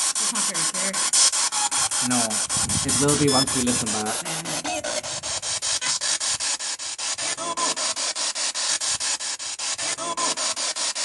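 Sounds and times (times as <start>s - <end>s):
chopped radio static: 0.0s - 6.0s, 7.2s - 7.8s.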